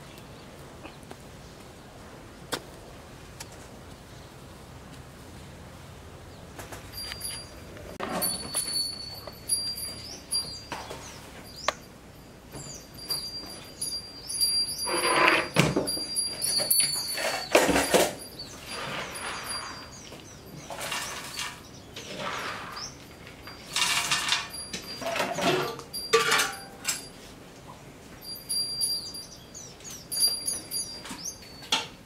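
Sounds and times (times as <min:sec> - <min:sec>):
small birds chirping: 0:09.1 - 0:11.9, 0:12.5 - 0:14.9, 0:16.1 - 0:23.8, 0:28.2 - 0:31.7
lids and pots clattering: 0:14.8 - 0:20.0, 0:20.6 - 0:27.1, 0:31.0 - 0:32.0.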